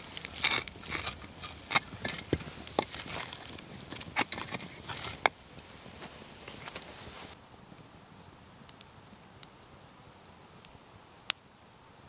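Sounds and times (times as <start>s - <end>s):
campfire crackling: 0.0s - 7.9s.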